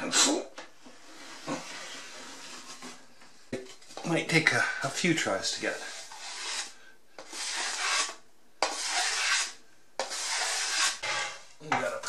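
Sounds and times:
sandpaper rubbing on wood: 5.7s - 6.7s, 7.3s - 11.3s.

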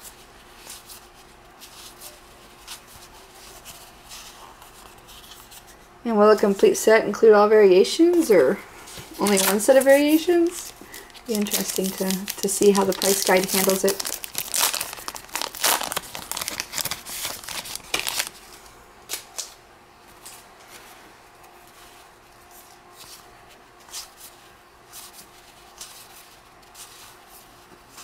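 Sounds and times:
wrapper crinkling and tearing: 9.2s - 18.4s.

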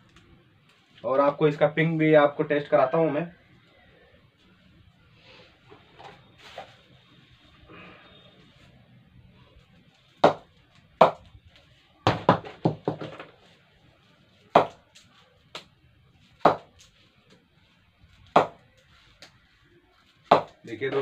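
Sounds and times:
wooden knocks on cricket bat: 10.2s - 10.4s, 11.0s - 11.3s, 12.1s - 13.3s, 14.6s - 14.8s, 16.4s - 16.7s, 18.4s - 18.6s, 20.3s - 20.6s.

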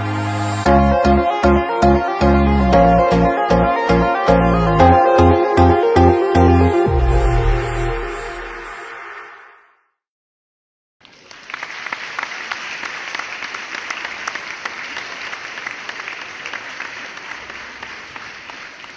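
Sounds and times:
background music: 0.0s - 9.4s
applause: 11.0s - 18.9s.

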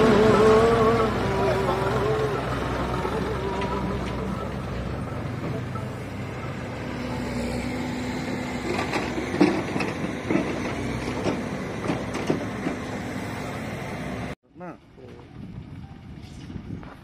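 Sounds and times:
knocks and clanks: 0.0s - 7.3s, 8.0s - 13.0s
tractor engine running: 0.0s - 14.4s.

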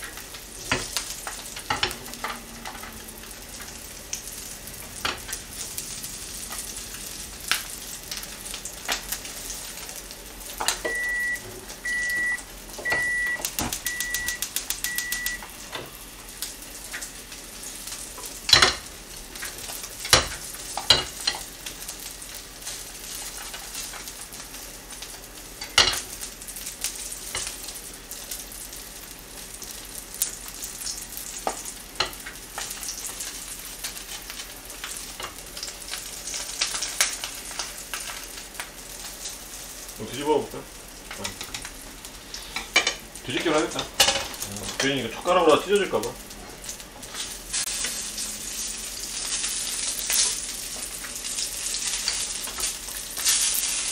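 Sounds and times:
fish sizzling in a pan: 0.0s - 53.9s
short beeps: 10.9s - 15.4s.

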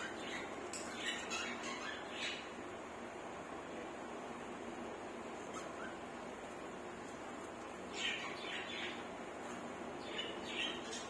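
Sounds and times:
budgerigars chirping: 0.0s - 2.5s, 7.9s - 9.0s.

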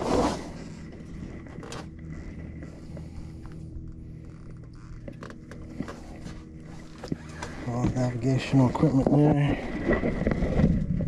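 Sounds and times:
canvas rustling: 0.0s - 1.2s
low steady hum: 0.0s - 11.0s
knocks and creaks: 0.5s - 11.0s.

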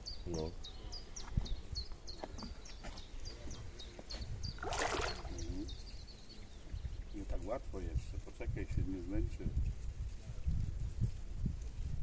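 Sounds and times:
bird high falling chirp: 2.1s - 7.2s
fish splashing at water surface: 4.6s - 5.4s.

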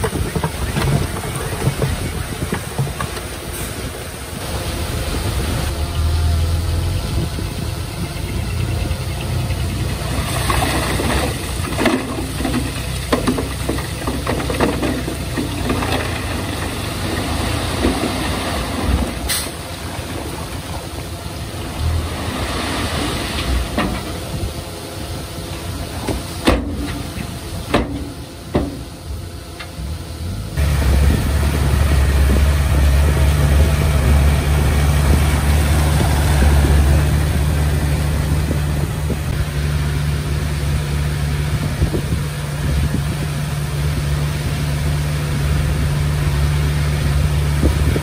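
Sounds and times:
bulldozer diesel engine running: 0.0s - 48.0s
clanking and rattling: 10.4s - 20.9s.

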